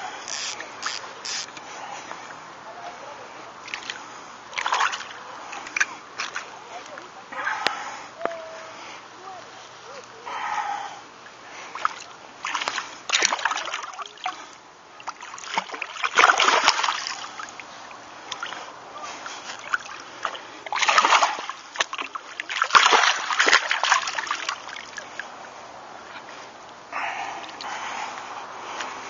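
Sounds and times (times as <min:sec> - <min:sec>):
fish splashing in water: 0:03.6 - 0:06.5, 0:11.7 - 0:25.4.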